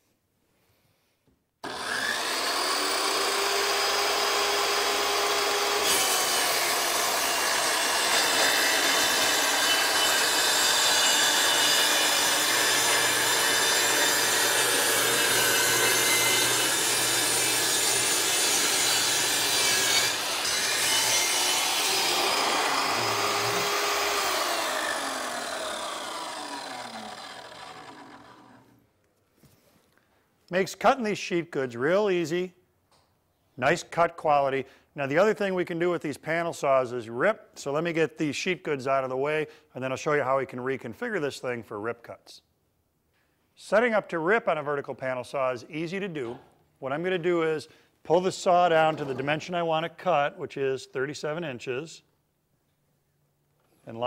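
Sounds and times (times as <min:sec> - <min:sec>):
panel saw cutting plywood: 0:01.6 - 0:28.7.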